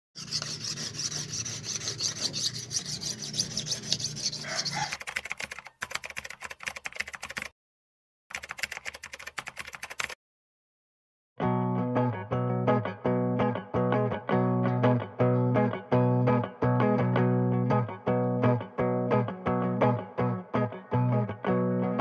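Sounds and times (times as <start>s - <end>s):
blade sharpening strokes: 0.2s - 5.0s.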